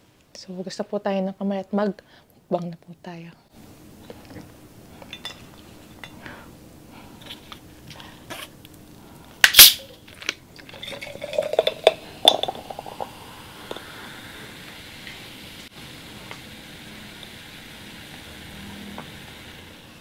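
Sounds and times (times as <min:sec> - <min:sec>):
dishes and glassware clinking: 0:05.1 - 0:06.2, 0:10.6 - 0:13.1
soda pouring over ice: 0:10.6 - 0:14.0
soda fizzing: 0:10.6 - 0:20.0.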